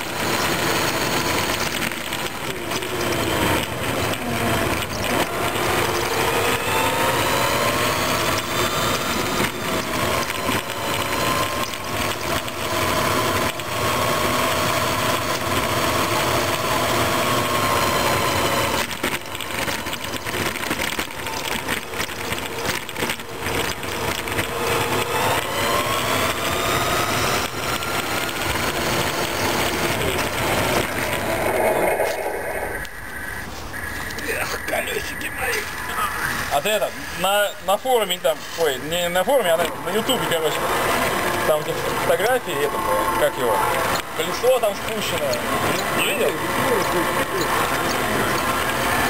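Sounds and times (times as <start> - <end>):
rattles and knocks on asphalt: 0.0 - 6.6, 7.5 - 31.6
model truck motor whine: 0.0 - 49.0.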